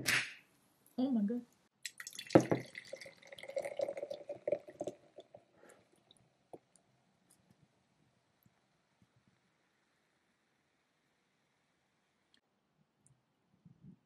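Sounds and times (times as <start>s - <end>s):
liquid pouring and splashing: 1.8s - 6.7s
fizzing bubbles popping: 1.9s - 6.7s.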